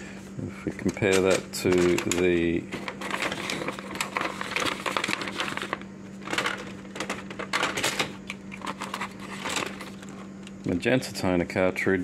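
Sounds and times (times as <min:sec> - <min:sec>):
steady low hum: 0:00.0 - 0:12.0
paper rustling: 0:00.7 - 0:10.3.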